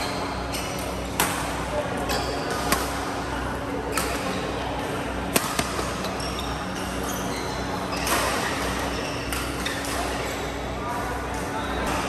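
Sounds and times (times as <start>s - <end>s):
rackets striking shuttlecock: 5.3s - 6.1s.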